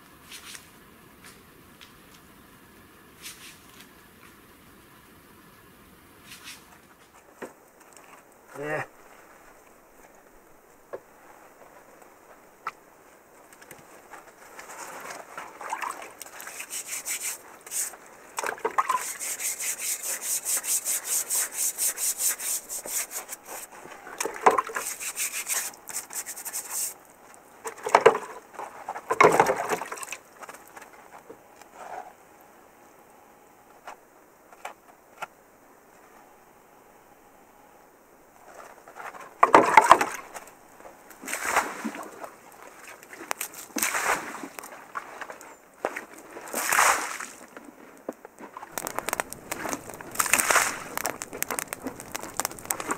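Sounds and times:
rhythmic scraping of mud: 0:13.2 - 0:29.6, 0:38.4 - 0:52.9.

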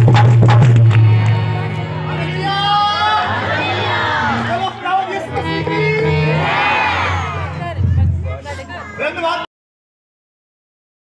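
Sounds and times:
harmonium held notes: 0:00.1 - 0:08.9
crowd voices: 0:00.9 - 0:09.5.

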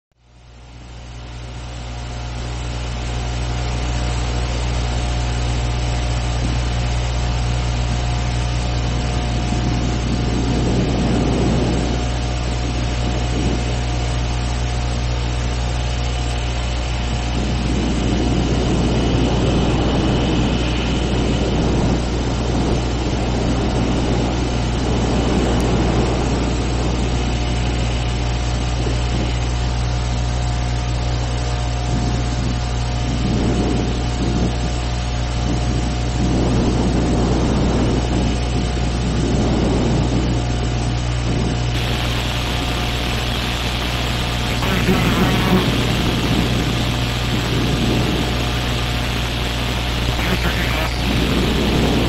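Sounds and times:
low rumbling drone: 0:41.8 - 0:52.0.

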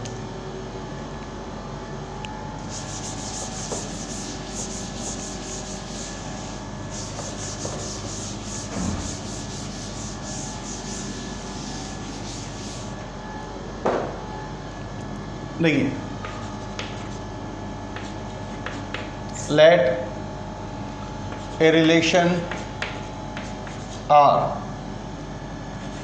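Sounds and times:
duster wiping a blackboard: 0:02.6 - 0:13.0.

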